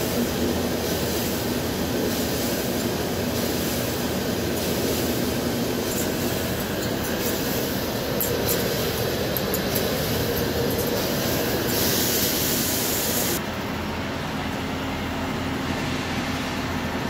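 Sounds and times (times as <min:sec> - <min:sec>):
coolant spray hiss: 0:00.0 - 0:13.4.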